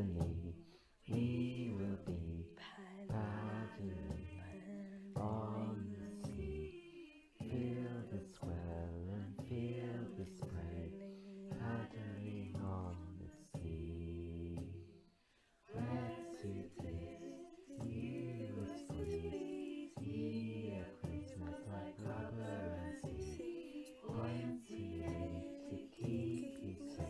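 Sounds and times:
low held accompaniment: 0:00.0 - 0:14.8, 0:15.7 - 0:27.0
choir singing a sea shanty: 0:00.0 - 0:27.0
percussion hits: 0:15.7 - 0:27.0.

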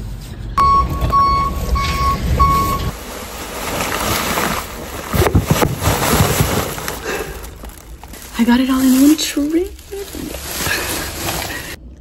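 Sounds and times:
car warning chime beeping: 0:00.6 - 0:02.9.

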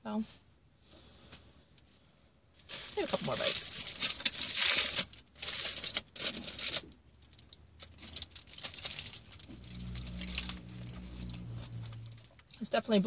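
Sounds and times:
aluminium foil crinkling: 0:02.6 - 0:12.8.

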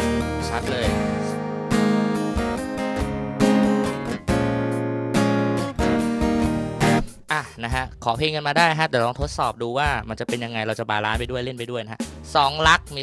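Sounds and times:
acoustic guitar strumming chords: 0:00.0 - 0:07.3.

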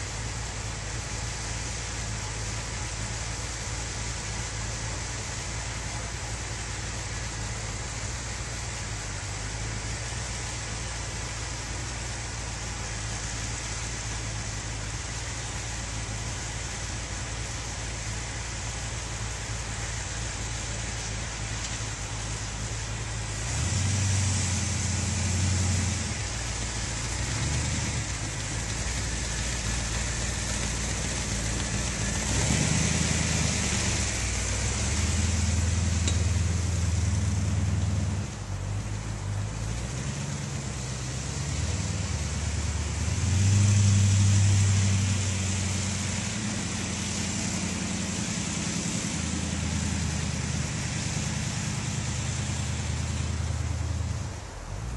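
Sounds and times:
rc buggy engine revving: 0:23.3 - 0:38.2.

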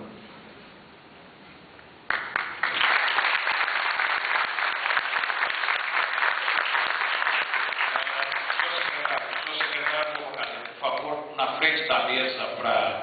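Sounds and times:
audience applauding: 0:02.1 - 0:11.2.

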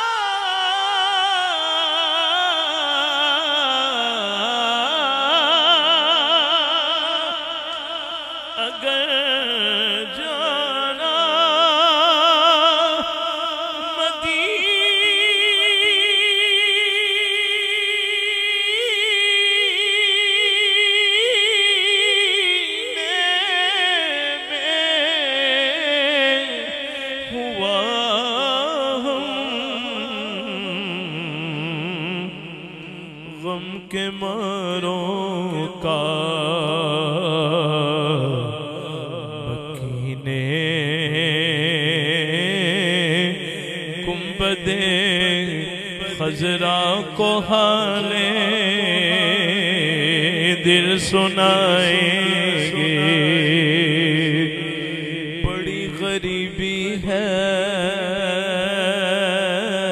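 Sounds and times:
man chanting melismatic phrases: 0:13.9 - 0:59.9.

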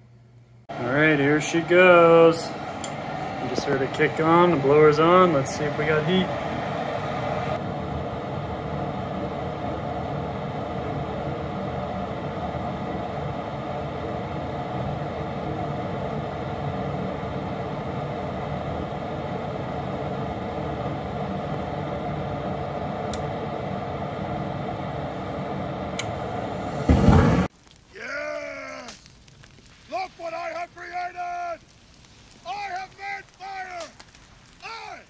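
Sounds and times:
furnace blower fan whir: 0:00.0 - 0:27.5.

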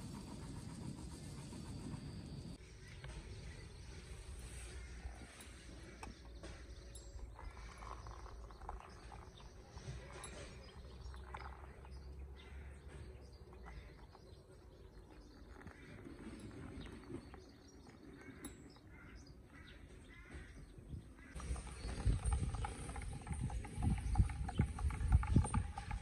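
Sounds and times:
birds chirping: 0:00.0 - 0:26.0
water trickling into a mug: 0:07.2 - 0:12.2, 0:21.4 - 0:26.0.

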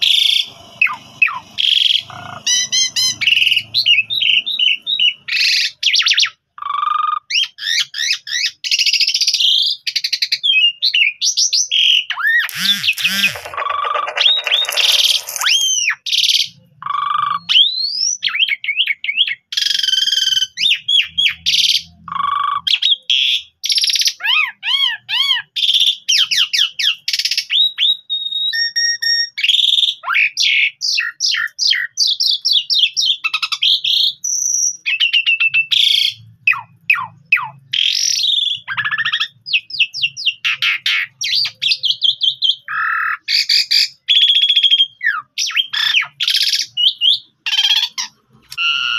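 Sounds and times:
starling singing: 0:00.0 - 0:28.0.

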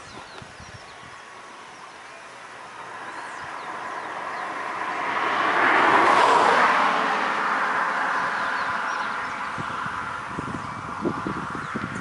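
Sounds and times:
road vehicle approaching: 0:01.0 - 0:12.0.

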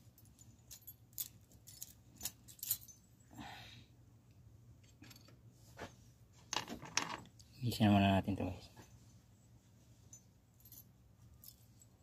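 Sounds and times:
small metal parts clicking: 0:00.1 - 0:03.0.

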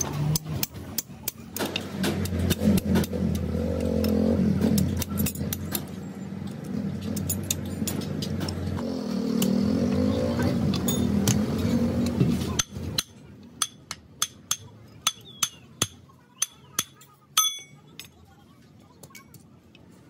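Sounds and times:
vehicle engine revving: 0:01.8 - 0:12.6.

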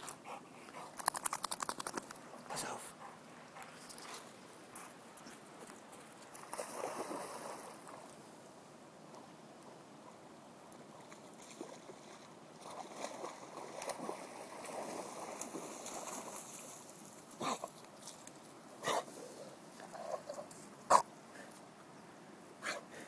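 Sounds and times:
dog splashing through water: 0:11.1 - 0:17.7.

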